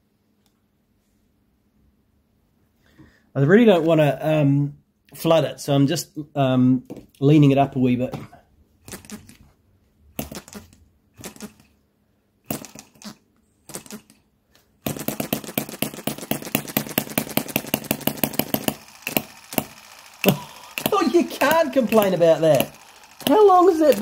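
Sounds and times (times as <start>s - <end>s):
flywheel clicks: 14.9s - 24.0s
model engine firing pops: 14.9s - 24.0s.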